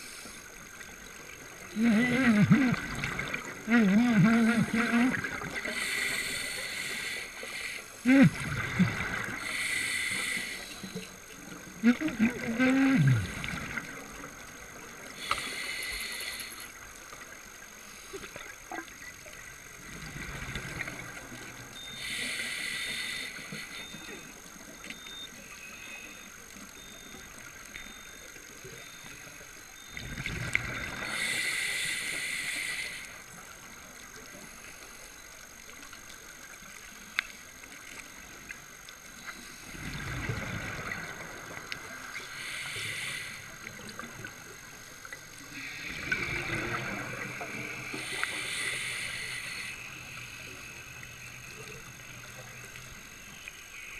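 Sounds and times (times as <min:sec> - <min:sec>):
diver breathing through regulator: 0:05.7 - 0:08.4, 0:09.4 - 0:11.0, 0:15.2 - 0:16.7, 0:21.9 - 0:24.0, 0:31.0 - 0:33.2, 0:42.3 - 0:43.6, 0:45.6 - 0:49.9
faint clicks: 0:13.4 - 0:17.4, 0:30.4 - 0:39.5.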